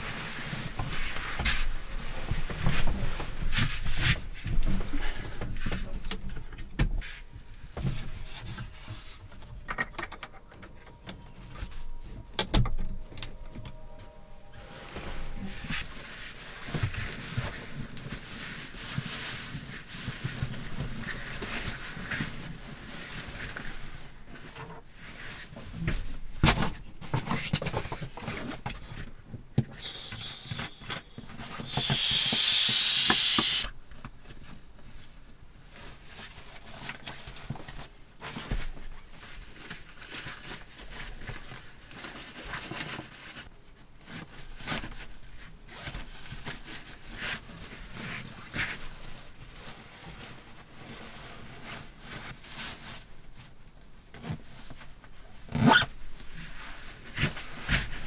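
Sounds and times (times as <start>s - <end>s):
fabric rustling and rubbing: 0.0s - 4.6s, 13.8s - 26.2s, 34.9s - 55.7s
loud even hiss: 29.7s - 33.7s.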